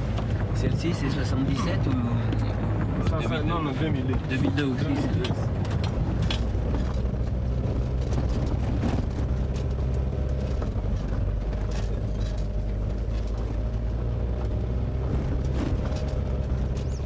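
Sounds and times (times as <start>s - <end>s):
car engine running: 0.0s - 17.0s
road noise: 0.0s - 17.0s.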